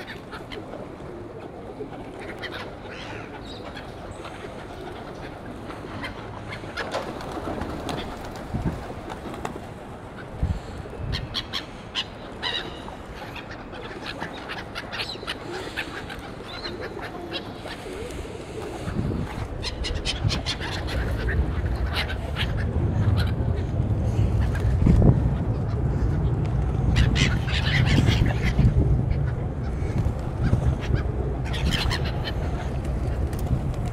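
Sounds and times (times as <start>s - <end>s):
gulls giving harsh calls: 11.0s - 32.8s
low rumble: 19.0s - 33.9s.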